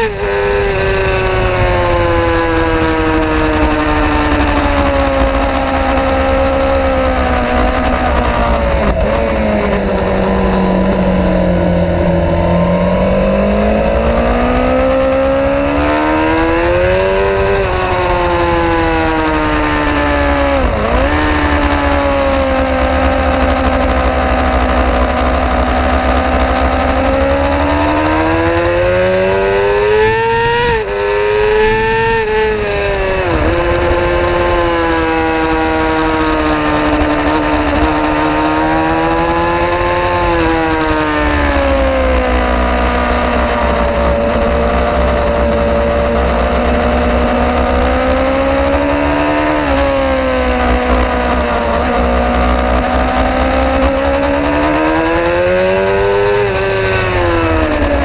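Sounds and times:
motorcycle engine at racing speed: 0.0s - 58.0s
wind rumble on microphone: 0.0s - 58.0s.

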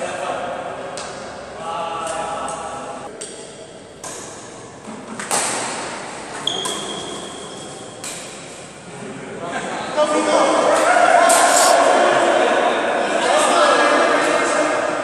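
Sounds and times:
racket hitting shuttlecock: 3.1s - 7.3s, 8.0s - 8.6s.

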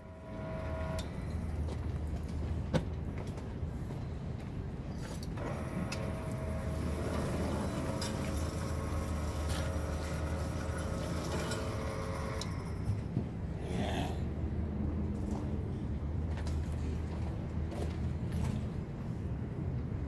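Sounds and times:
low hum: 0.0s - 2.4s
motor whining: 5.4s - 12.9s.

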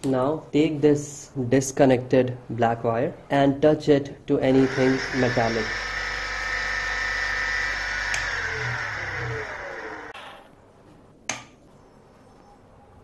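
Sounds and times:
electric motor whining: 4.5s - 10.2s.

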